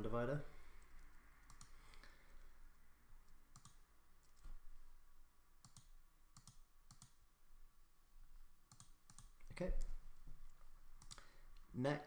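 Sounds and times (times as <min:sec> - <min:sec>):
computer mouse clicks: 0:00.8 - 0:02.0, 0:03.2 - 0:04.5, 0:05.6 - 0:07.2, 0:08.7 - 0:09.5, 0:11.0 - 0:11.3.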